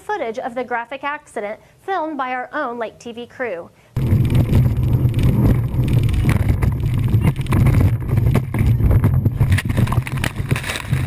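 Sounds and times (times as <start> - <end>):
wind rushing over microphone: 4.0 - 11.0.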